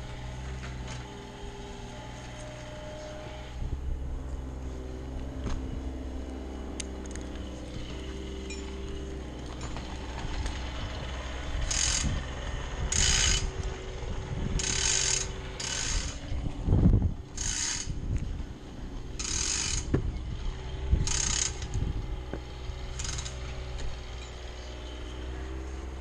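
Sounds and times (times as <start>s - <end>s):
steady low hum: 0.0s - 26.0s
rope rasping through hardware: 14.5s - 16.3s, 19.2s - 20.0s.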